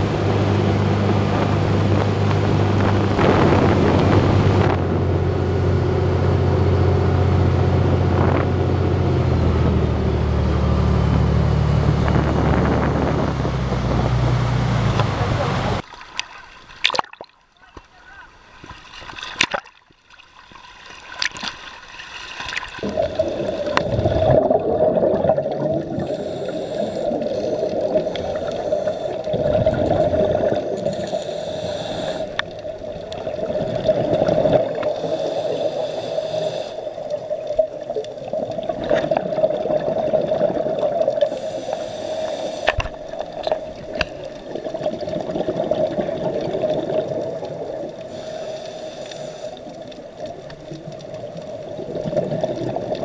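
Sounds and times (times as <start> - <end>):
exhaled bubbles rumbling: 0.0 - 15.8, 22.4 - 53.0
steady hum: 0.0 - 15.8, 22.8 - 37.2, 40.2 - 44.4, 47.5 - 49.9
water sloshing: 13.6 - 53.0
diver breathing through regulator: 25.8 - 32.6, 34.2 - 37.1, 41.2 - 43.2, 48.0 - 49.9.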